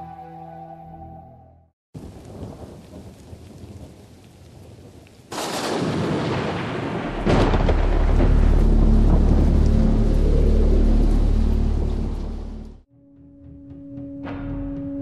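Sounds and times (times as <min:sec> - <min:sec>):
music: 0:00.0 - 0:01.7, 0:08.0 - 0:15.0
rain hissing: 0:02.0 - 0:12.8
thunderclap rumbling: 0:02.0 - 0:12.8.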